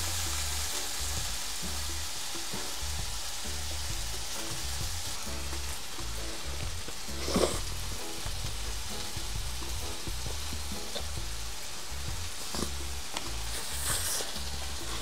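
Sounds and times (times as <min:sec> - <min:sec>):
background music with bass line: 0:00.0 - 0:15.0
meat sizzling on grill: 0:00.0 - 0:15.0
biting into hamburger: 0:07.2 - 0:07.7.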